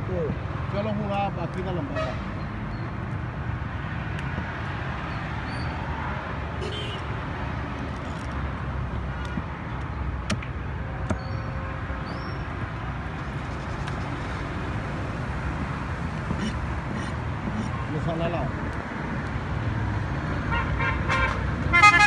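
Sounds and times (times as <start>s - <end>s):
street market background noise: 0.0s - 21.7s
traffic: 0.0s - 22.0s
cleaver chopping on wooden block: 10.2s - 11.3s, 16.2s - 17.7s.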